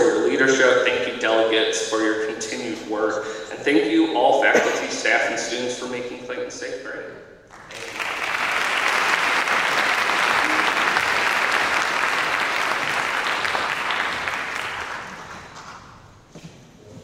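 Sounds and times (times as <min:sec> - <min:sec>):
audience applauding: 0:07.5 - 0:16.1.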